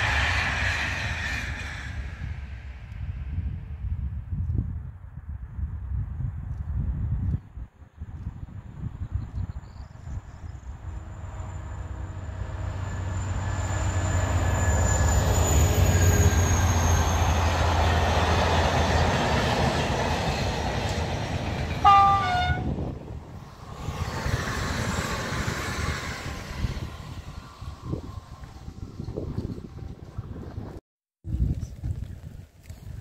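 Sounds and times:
locomotive drone: 0:00.0 - 0:03.8, 0:10.0 - 0:30.8
two-tone train horn: 0:21.8 - 0:22.8.

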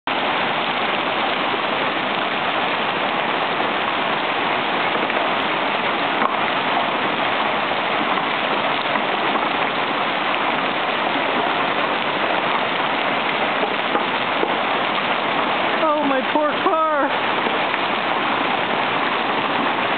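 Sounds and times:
hailstones clattering on pavement: 0:11.2 - 0:19.9.

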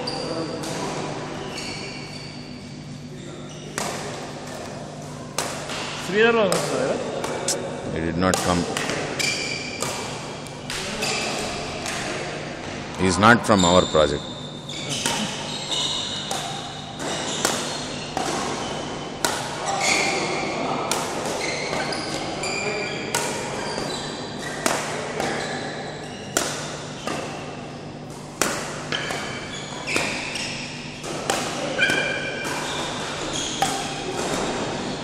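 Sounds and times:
shoes squeaking on court floor: 0:00.0 - 0:07.6, 0:08.5 - 0:12.0, 0:12.9 - 0:28.0, 0:28.8 - 0:35.0
rackets hitting shuttlecocks: 0:03.8 - 0:07.6, 0:08.2 - 0:12.4, 0:14.9 - 0:22.2, 0:23.1 - 0:35.0.

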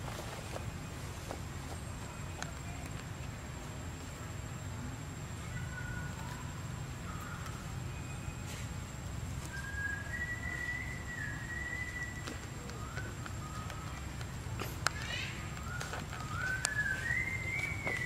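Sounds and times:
whistled animal calls: 0:05.4 - 0:08.7, 0:09.4 - 0:18.0.

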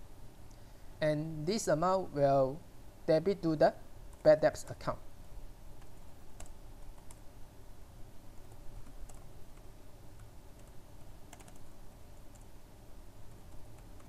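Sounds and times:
low background hum: 0:00.0 - 0:14.0
typing on computer keyboard: 0:05.8 - 0:07.2, 0:08.4 - 0:12.5, 0:13.3 - 0:14.0.

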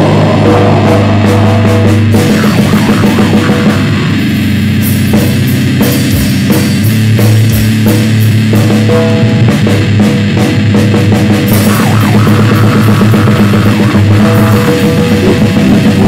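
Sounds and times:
distorted guitar and bass: 0:00.0 - 0:16.0
drums: 0:00.0 - 0:16.0
cymbal hits: 0:01.8 - 0:08.8.

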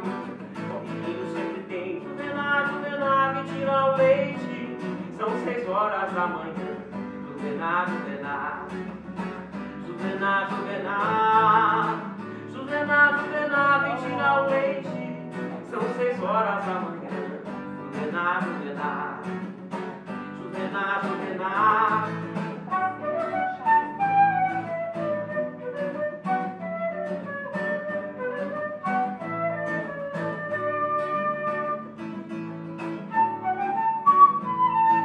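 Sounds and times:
strummed acoustic guitar: 0:00.0 - 0:35.0
flute melody: 0:21.6 - 0:35.0.

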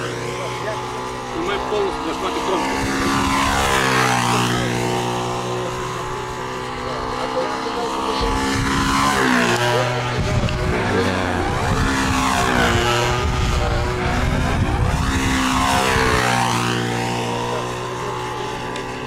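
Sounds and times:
model plane engine buzzing: 0:00.0 - 0:19.0.

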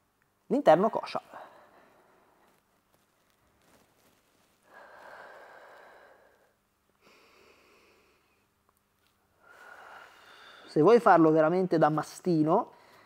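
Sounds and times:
man breathing out slowly: 0:04.6 - 0:08.4, 0:09.4 - 0:10.7.

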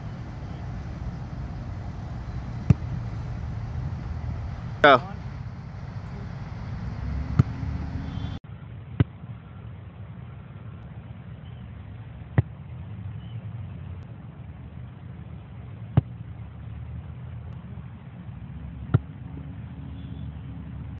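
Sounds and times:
steady low rumble: 0:00.0 - 0:13.1
soccer ball kick thumps: 0:02.0 - 0:04.0, 0:07.2 - 0:08.3.

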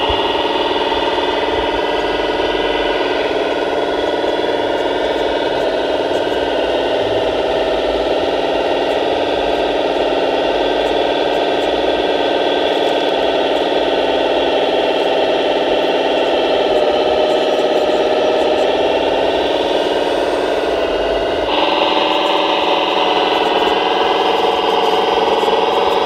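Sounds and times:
model loader motor whine: 0:00.0 - 0:26.0.

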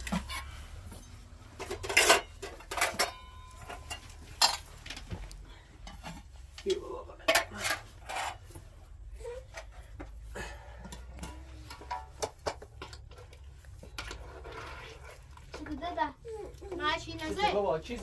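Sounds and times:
hard objects clinking and knocking: 0:00.0 - 0:05.2.

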